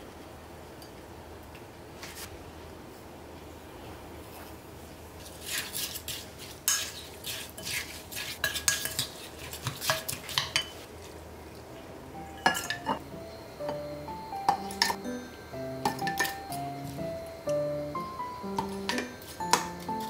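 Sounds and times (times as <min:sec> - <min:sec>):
utensils clicking against dishes: 0:08.4 - 0:10.8, 0:15.8 - 0:16.6.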